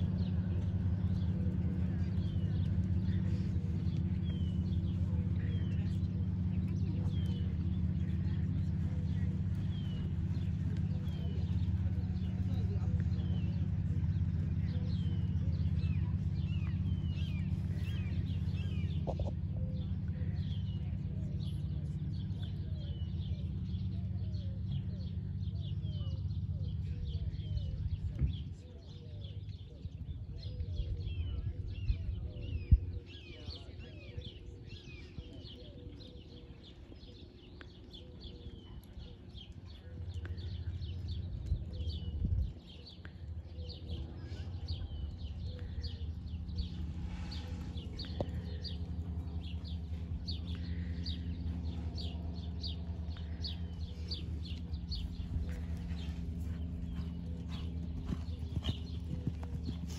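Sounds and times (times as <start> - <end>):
small birds chirping: 0.0 - 59.9
steady low rumble: 0.0 - 59.9
low rumble: 38.7 - 59.9.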